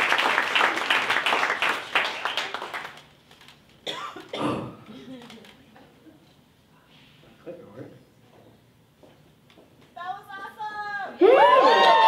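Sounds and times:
audience applause: 0.0s - 3.1s, 11.4s - 12.0s.

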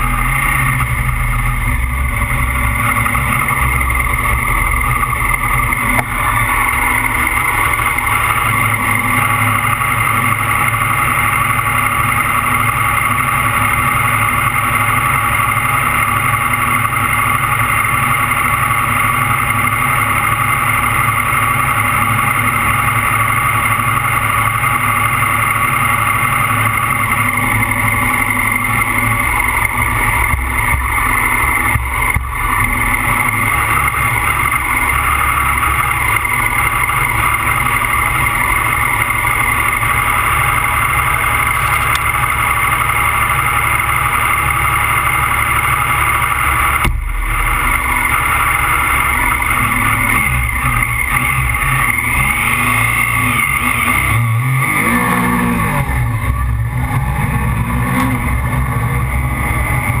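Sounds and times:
rally car engine: 0.0s - 60.0s
sharp bang: 46.6s - 50.5s.

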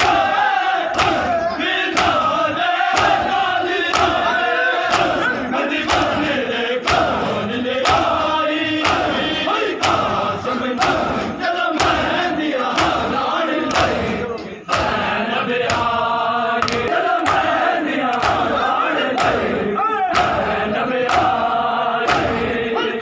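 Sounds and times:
men chanting together: 0.0s - 23.0s
hands slapping chests: 0.9s - 2.2s, 2.9s - 4.2s, 8.8s - 9.2s, 14.7s - 15.0s, 16.6s - 18.5s, 20.1s - 21.4s, 22.0s - 22.4s.

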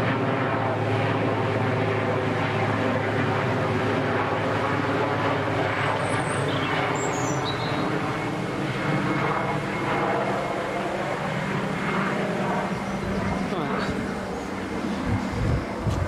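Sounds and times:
helicopter flying overhead: 0.0s - 16.0s.

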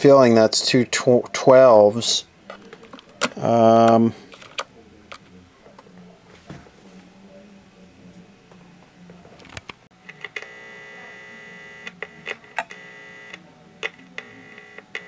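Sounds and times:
electronic buzz from speaker: 10.0s - 15.0s.

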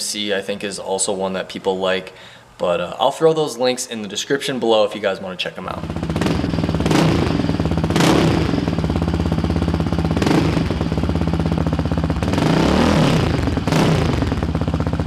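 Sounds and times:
engine idling with throttle blips: 5.8s - 15.0s.

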